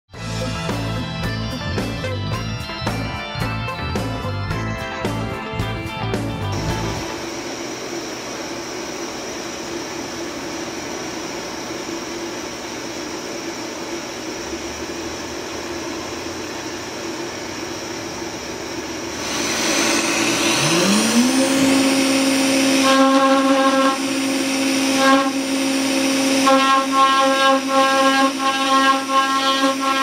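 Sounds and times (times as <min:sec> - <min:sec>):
router spindle whine: 0:06.5 - 0:30.0
shop machinery hum: 0:06.5 - 0:30.0.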